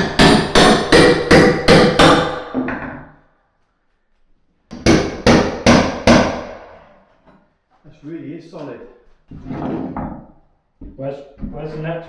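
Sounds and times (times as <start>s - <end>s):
hammer striking steel pry bar: 0.0s - 2.7s.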